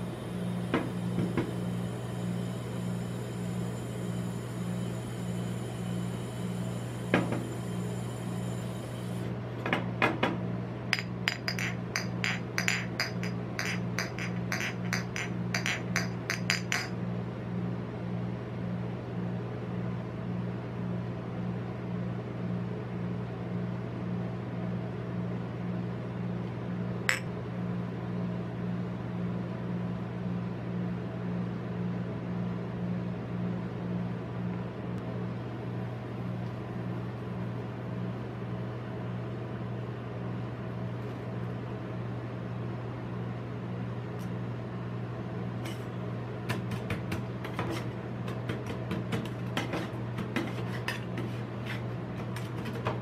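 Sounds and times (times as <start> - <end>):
refrigeration unit humming: 0.0 - 53.0
clinks and taps on steel pan: 11.0 - 17.0.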